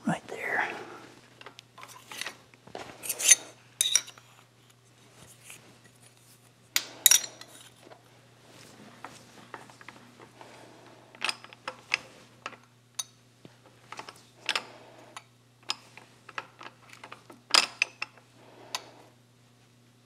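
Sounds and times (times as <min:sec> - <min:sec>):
steel tools clinking: 0:03.0 - 0:04.2.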